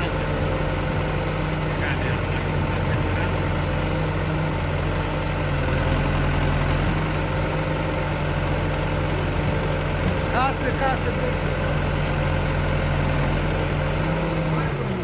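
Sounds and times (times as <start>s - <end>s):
backhoe diesel engine running: 0.0s - 15.0s.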